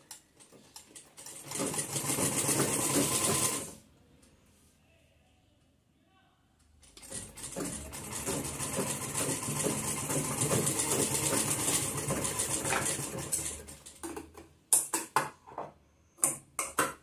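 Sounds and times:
sewing machine stitching: 0:00.4 - 0:03.8, 0:06.8 - 0:14.0.

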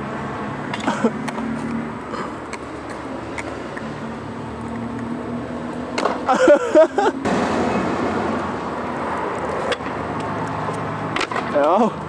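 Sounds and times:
skateboard wheels rolling on asphalt: 0:00.0 - 0:12.0
skateboard clacks: 0:05.9 - 0:06.3, 0:09.2 - 0:11.8.

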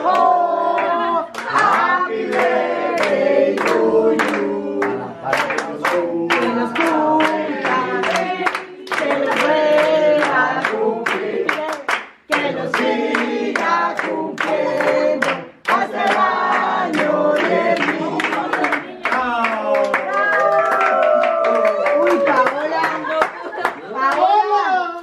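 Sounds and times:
group singing in chorus: 0:00.0 - 0:19.4
hands clapping along: 0:00.0 - 0:24.3.

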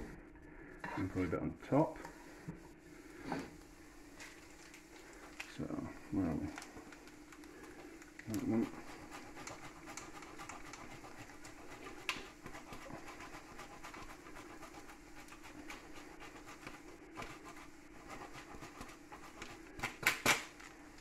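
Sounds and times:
low steady hum: 0:00.0 - 0:21.0
cheese rasping on grater: 0:08.3 - 0:20.0.

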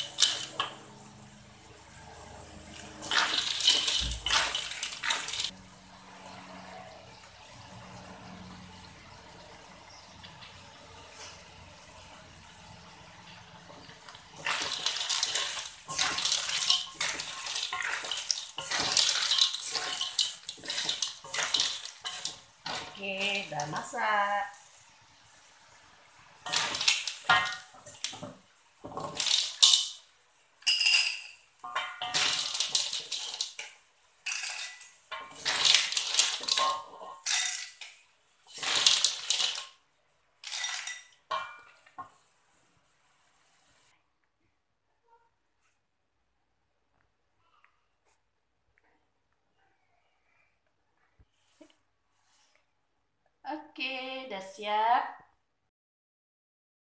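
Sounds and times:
snail shells scraping in a wok: 0:00.0 - 0:07.9, 0:12.7 - 0:24.6, 0:26.4 - 0:39.8, 0:40.4 - 0:41.2.

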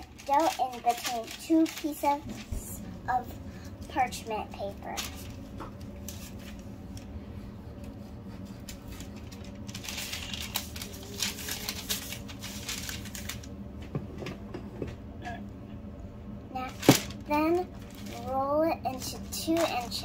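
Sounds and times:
parchment paper crinkling: 0:00.0 - 0:07.2, 0:08.3 - 0:13.6, 0:16.6 - 0:20.0
steady low hum: 0:00.0 - 0:20.0.

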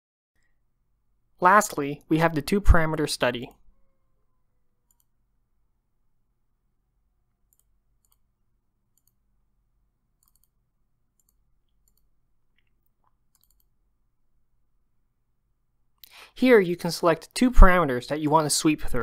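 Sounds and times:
computer mouse clicks: 0:04.9 - 0:05.1, 0:07.5 - 0:08.3, 0:08.9 - 0:09.2, 0:10.2 - 0:10.6, 0:11.2 - 0:13.8.

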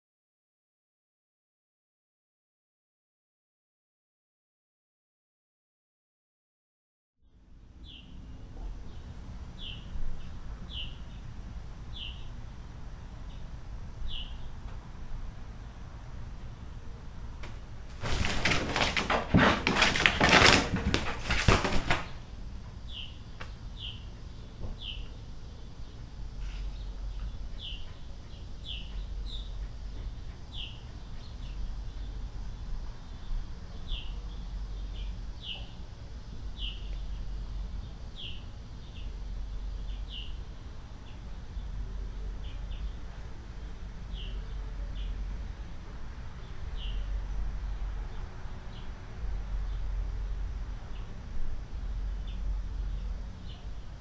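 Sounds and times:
bird chirping: 0:07.8 - 0:11.3, 0:11.9 - 0:12.4, 0:13.3 - 0:14.6, 0:22.9 - 0:32.2, 0:33.1 - 0:35.8, 0:36.6 - 0:39.2, 0:44.1 - 0:45.2, 0:46.4 - 0:47.2
plastic sheeting crinkling: 0:17.9 - 0:22.2.

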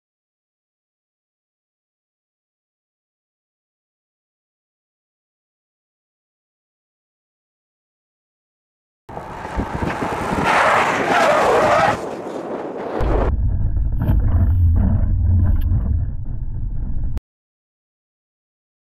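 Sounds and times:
low engine and road rumble: 0:09.1 - 0:17.2.

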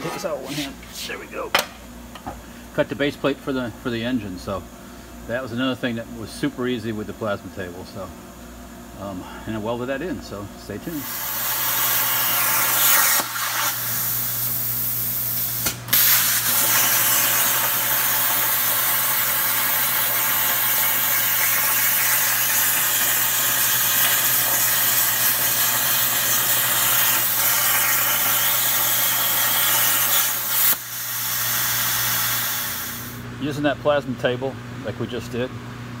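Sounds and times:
plasma torch hissing: 0:10.9 - 0:33.2.

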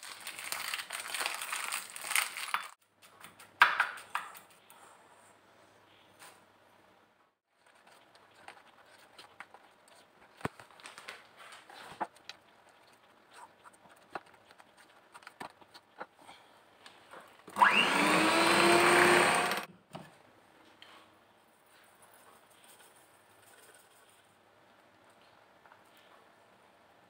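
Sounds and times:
faint handling sounds: 0:07.5 - 0:17.4
electric hand mixer whining: 0:17.5 - 0:19.7.

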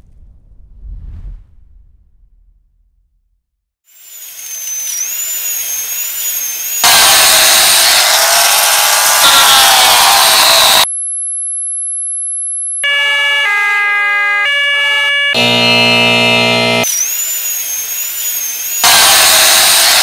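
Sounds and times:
electronic tones stepping pitches: 0:03.9 - 0:10.8
high-pitched electronic tone: 0:03.9 - 0:10.9, 0:15.3 - 0:20.0
wavering high whistle-like tone: 0:03.9 - 0:10.9, 0:15.3 - 0:20.0
harsh noisy sound: 0:04.0 - 0:10.9, 0:15.4 - 0:20.0
harsh low buzz: 0:15.3 - 0:16.9.

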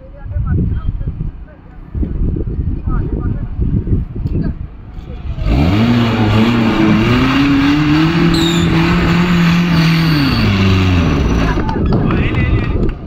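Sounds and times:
off-road vehicle engine revving: 0:04.9 - 0:13.0.

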